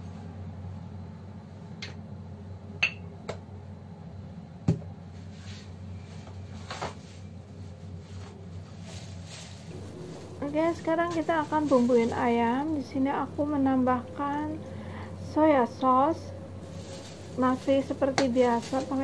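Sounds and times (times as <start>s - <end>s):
steady low hum: 0.0s - 19.0s
glass bottles clinking: 2.8s - 3.0s.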